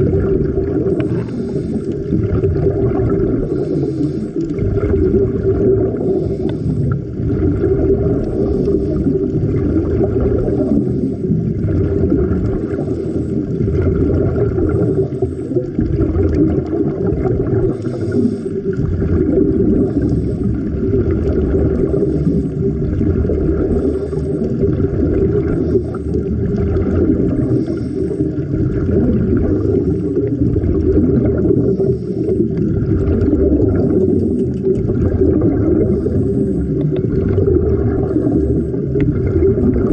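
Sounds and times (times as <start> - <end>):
faint hum: 0.0 - 39.9
underwater rumble and wash: 0.0 - 39.9.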